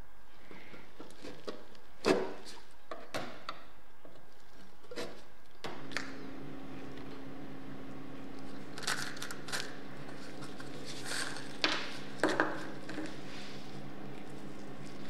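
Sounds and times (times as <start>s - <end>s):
steady low hum: 3.7s - 15.0s.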